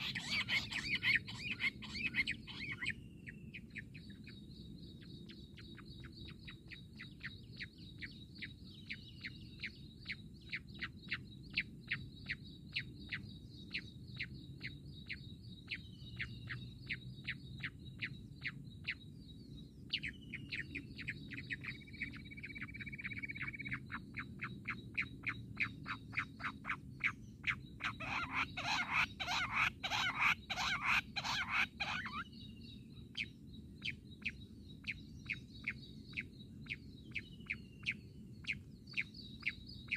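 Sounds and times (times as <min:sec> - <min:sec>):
quail calling sharp notes: 0:00.0 - 0:02.9, 0:27.9 - 0:32.2.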